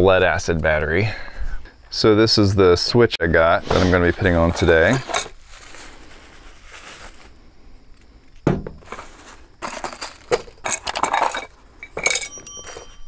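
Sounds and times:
plastic bag crinkling: 4.1 - 7.4
part knocking on bed liner: 8.4 - 8.8.

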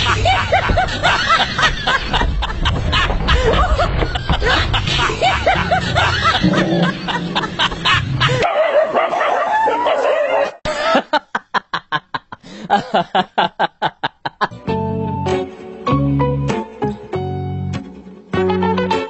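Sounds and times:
dog barking rapidly: 8.4 - 10.6
background music: 14.5 - 19.0.

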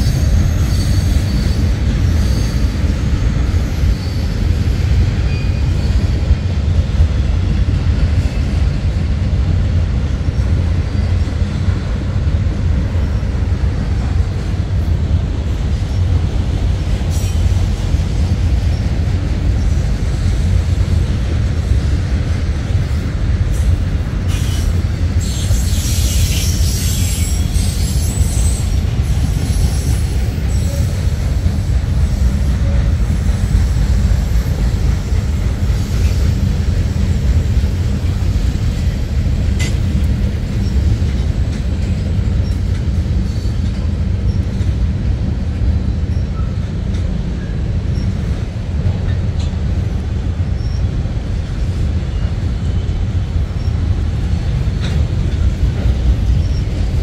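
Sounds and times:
high wheel squeal: 0.0 - 4.6, 5.2 - 6.2, 24.3 - 33.6
train wheels rumbling on rails: 0.0 - 57.0.

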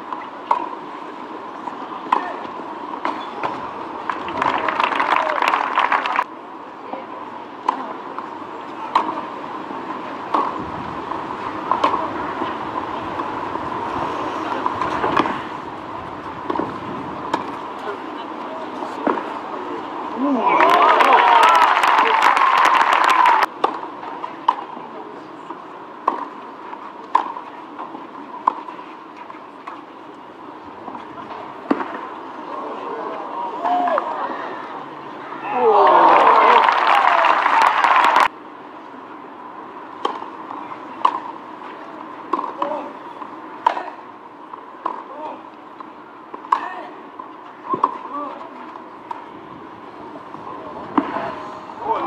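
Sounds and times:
background noise: 0.0 - 52.0
racket hitting tennis ball: 0.4 - 0.8, 10.3 - 10.6, 11.5 - 13.4, 14.4 - 15.5, 16.4 - 17.6, 23.6 - 24.7, 26.0 - 26.4, 27.1 - 29.8, 40.0 - 41.4, 42.2 - 42.8, 43.6 - 44.0.

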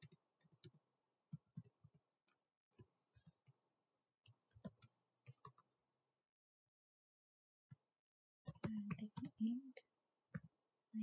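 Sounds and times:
typing on computer keyboard: 0.0 - 3.6, 4.2 - 5.7, 8.5 - 9.4, 10.3 - 10.6.

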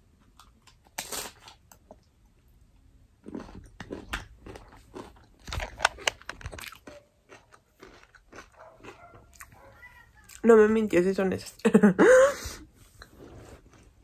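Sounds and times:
crunching crisp tostada: 0.2 - 2.1, 3.2 - 10.6.

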